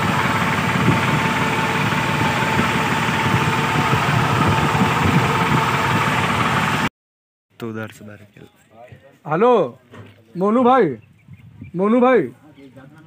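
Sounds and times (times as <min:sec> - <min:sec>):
tractor diesel engine chugging: 0:00.0 - 0:06.9.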